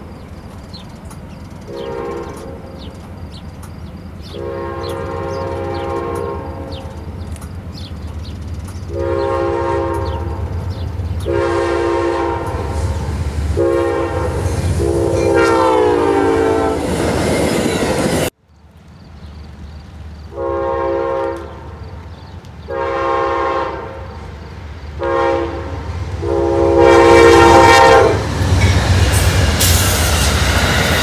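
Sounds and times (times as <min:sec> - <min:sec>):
diesel engine rumbling: 0:00.0 - 0:15.1
rush of passing train cars: 0:00.0 - 0:31.0
locomotive air horn blasts: 0:01.7 - 0:02.6, 0:04.2 - 0:07.0, 0:08.9 - 0:10.5, 0:11.2 - 0:13.0, 0:13.6 - 0:17.0, 0:20.3 - 0:21.7, 0:22.7 - 0:24.1, 0:25.0 - 0:28.3.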